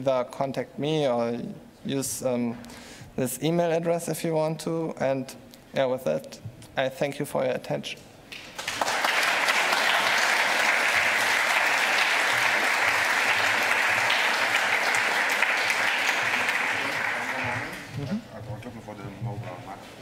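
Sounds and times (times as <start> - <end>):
audience applauding: 8.3 - 18.0.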